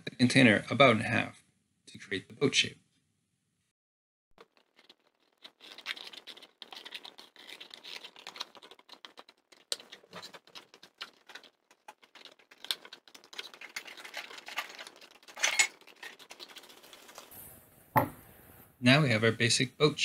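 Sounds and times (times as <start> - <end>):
cardboard rustling and creasing: 4.4 - 17.4.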